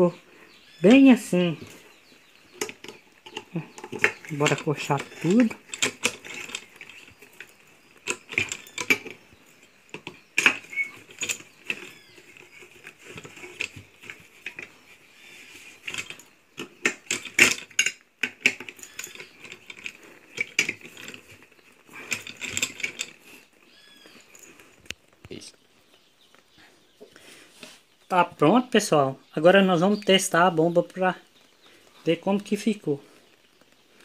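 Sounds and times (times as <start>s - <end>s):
tools clinking on metal: 2.6s - 14.7s, 15.9s - 23.2s.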